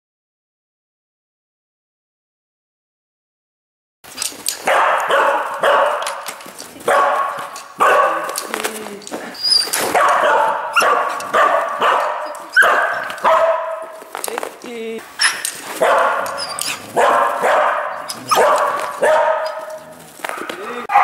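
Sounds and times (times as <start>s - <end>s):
dog barking: 4.6s - 8.6s, 9.8s - 14.0s, 15.2s - 21.0s.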